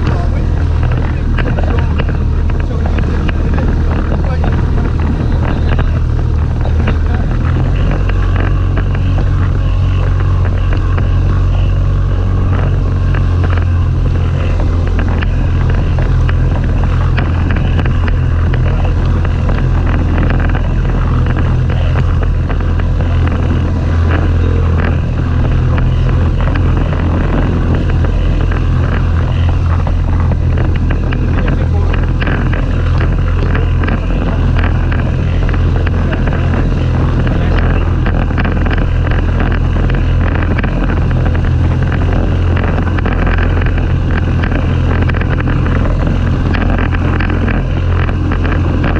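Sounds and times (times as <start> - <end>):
outboard motor running: 0.0 - 48.9
water splashing against hull: 0.0 - 48.9
wind on microphone: 0.0 - 48.9.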